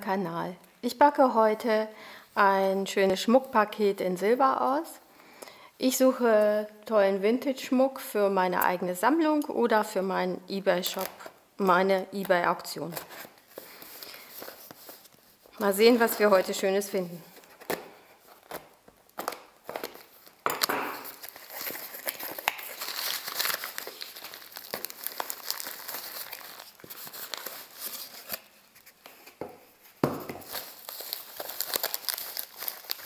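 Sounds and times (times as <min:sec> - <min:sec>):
packing wrap rustling and crinkling: 0:12.2 - 0:33.0.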